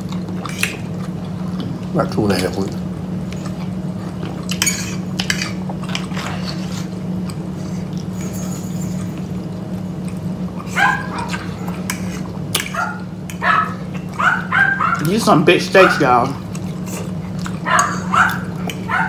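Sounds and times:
steady low hum: 0:00.0 - 0:19.0
dogs barking and yipping: 0:10.5 - 0:19.0.

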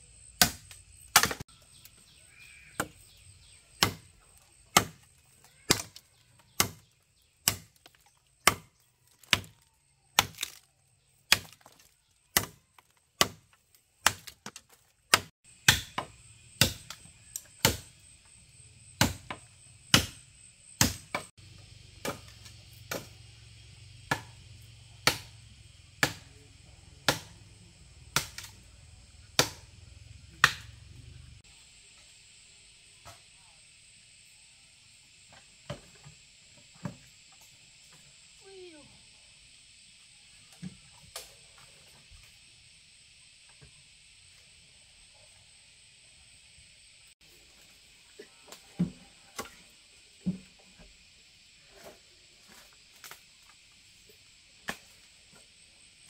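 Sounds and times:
hand tool chopping: 0:00.4 - 0:01.4, 0:03.8 - 0:04.1, 0:04.7 - 0:05.1, 0:05.7 - 0:09.6, 0:10.2 - 0:10.6, 0:11.3 - 0:17.9, 0:19.0 - 0:20.2, 0:20.8 - 0:21.3, 0:24.1 - 0:24.3, 0:25.0 - 0:25.3, 0:26.0 - 0:26.3, 0:27.0 - 0:27.3, 0:28.2 - 0:28.5, 0:29.4 - 0:29.7.

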